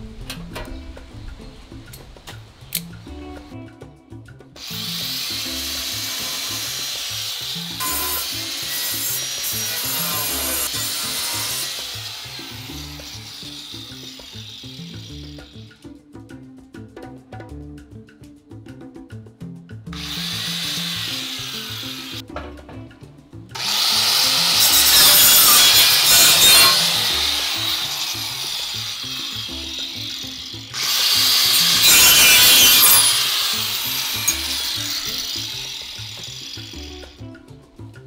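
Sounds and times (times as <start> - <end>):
angle grinder cutting metal: 4.6 - 15.6, 20.0 - 22.2, 23.6 - 37.2.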